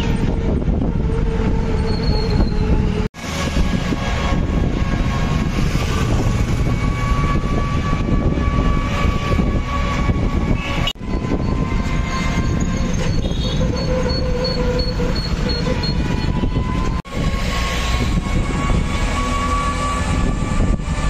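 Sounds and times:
vehicle rumbling and rattling: 0.0 - 21.0.

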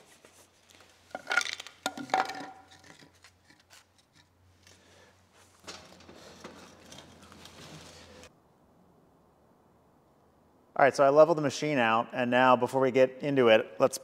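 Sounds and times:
pry bar scraping and creaking: 1.1 - 4.8, 5.6 - 8.3.

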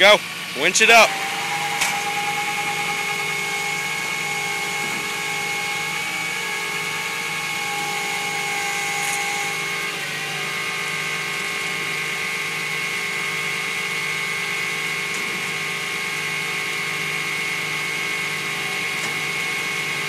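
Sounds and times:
hydraulic winch whining: 0.0 - 16.0
truck engine: 0.0 - 20.0.

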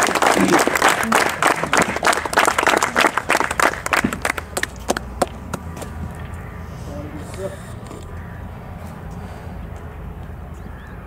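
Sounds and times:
crowd applauding: 0.0 - 5.6.

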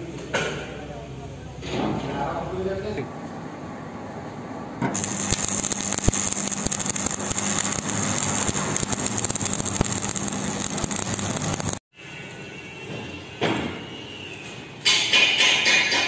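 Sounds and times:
welding arc crackling and sizzling: 4.9 - 11.9.

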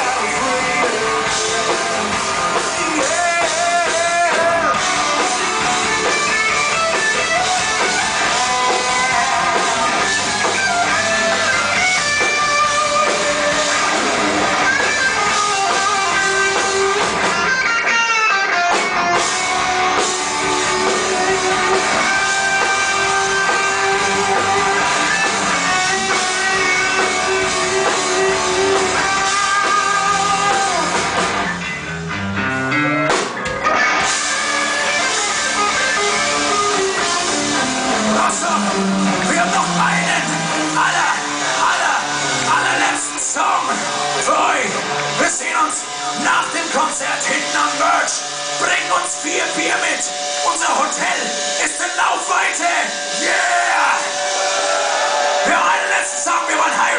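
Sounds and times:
distorted electric guitars: 0.0 - 56.9
drum kit: 0.0 - 56.9.

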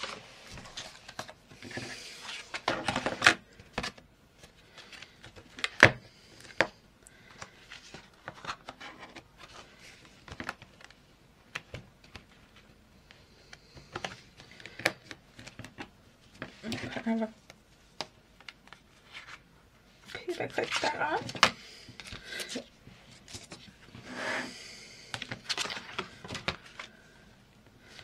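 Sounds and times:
paper pages rustling: 0.0 - 6.6, 7.2 - 12.7, 18.4 - 19.4, 20.0 - 24.0, 25.1 - 27.0.

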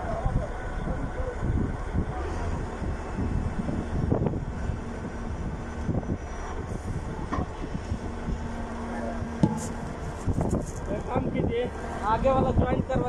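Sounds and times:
excavator diesel engine rumbling: 0.0 - 13.0
steady hum: 4.1 - 12.1
knocks: 9.4 - 9.8.

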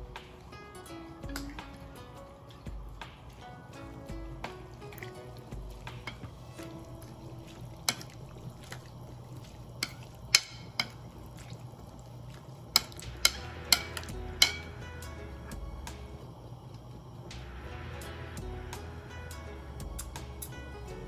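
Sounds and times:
low steady hum: 0.0 - 21.0
utensil clinking against cookware: 0.1 - 16.9.

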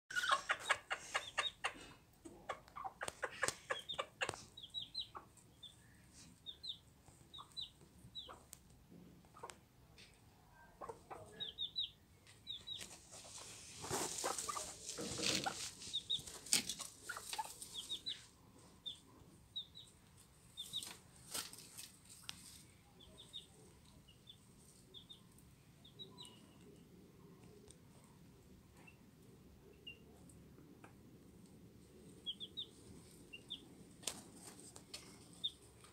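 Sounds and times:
hens clucking: 0.1 - 5.6, 10.8 - 19.2
chick peeping: 0.1 - 21.4, 22.2 - 35.9
rustling scuffling: 12.8 - 16.8.

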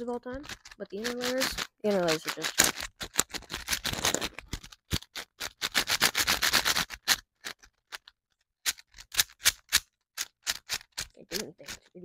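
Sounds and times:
puzzle cube layers clicking: 0.1 - 12.0.

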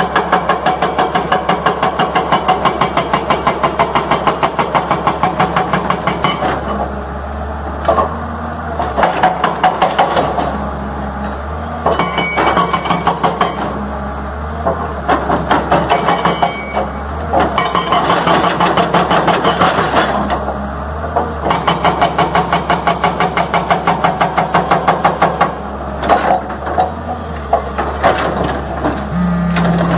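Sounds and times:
hydraulic rock breaker hammering: 0.0 - 7.0, 8.8 - 10.6, 11.8 - 13.8, 14.6 - 20.5, 21.1 - 29.9
diesel engine low hum: 6.6 - 9.1, 10.3 - 11.9, 20.0 - 21.5, 25.6 - 29.9.

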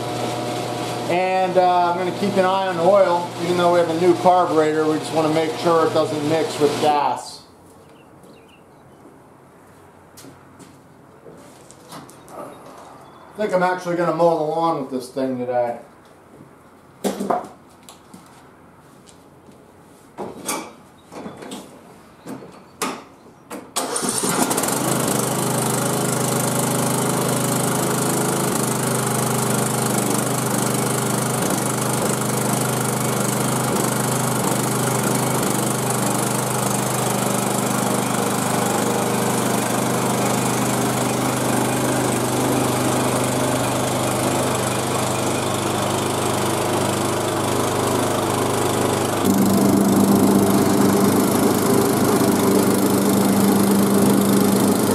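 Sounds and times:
lawn tractor engine running: 0.0 - 7.2, 23.8 - 54.9.

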